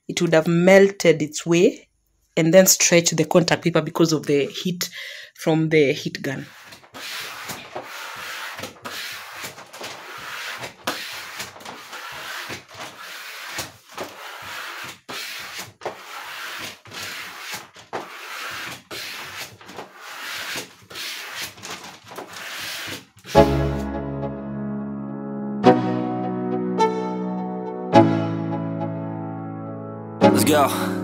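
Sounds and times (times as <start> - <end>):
squeegee scraping on vinyl: 6.4 - 23.8.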